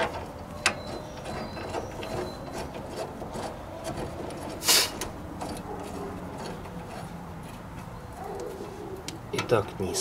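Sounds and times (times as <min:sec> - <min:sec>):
brief metal scrape: 0:04.6 - 0:05.0.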